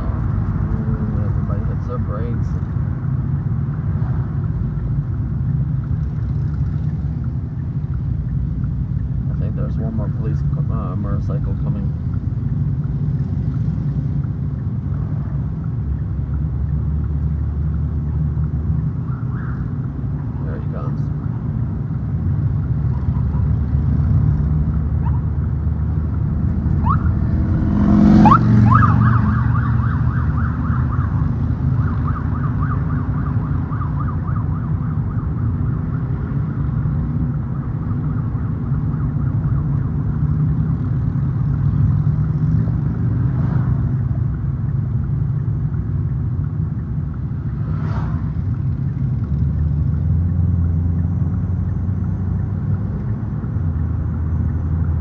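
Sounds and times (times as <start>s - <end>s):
vehicle rumble: 0.0s - 55.0s
police siren warbling: 26.7s - 27.3s, 28.0s - 36.2s.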